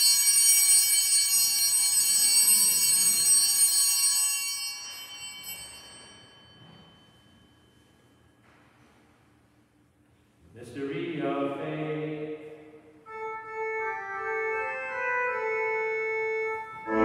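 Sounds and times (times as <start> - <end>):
altar bells ringing: 0.0 - 8.7.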